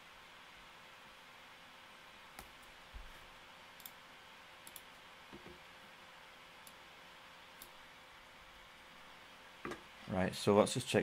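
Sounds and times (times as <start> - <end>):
low steady hiss: 0.0 - 11.0
computer mouse clicks: 3.8 - 4.0, 4.6 - 5.5.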